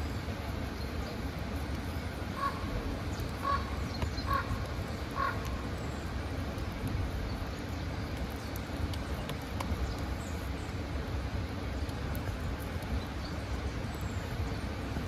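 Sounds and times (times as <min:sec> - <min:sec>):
bird calling: 0:02.4 - 0:02.7, 0:03.3 - 0:05.6.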